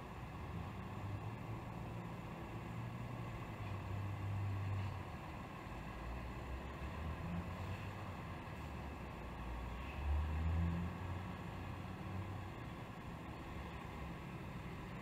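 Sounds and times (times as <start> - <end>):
muffled truck engine drone: 0.0 - 15.0.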